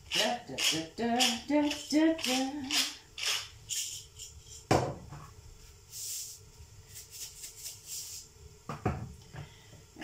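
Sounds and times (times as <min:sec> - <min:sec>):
salt and pepper shaking: 0:00.1 - 0:04.7, 0:05.9 - 0:08.3.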